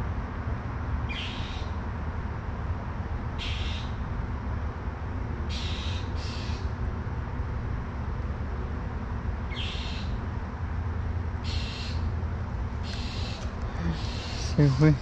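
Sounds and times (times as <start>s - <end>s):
bird harsh calls: 1.1s - 1.7s, 3.4s - 4.0s, 5.5s - 6.7s, 9.5s - 10.2s, 11.4s - 12.1s, 12.8s - 15.0s.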